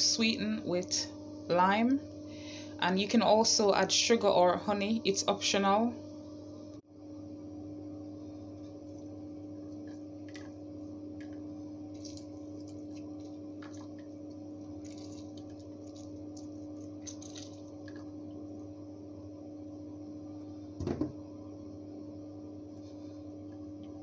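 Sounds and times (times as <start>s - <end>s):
steady hum: 0.0s - 24.0s
lime squeezed by hand squelching: 11.2s - 18.1s
wooden spoon stirring in blender jug: 12.0s - 18.2s.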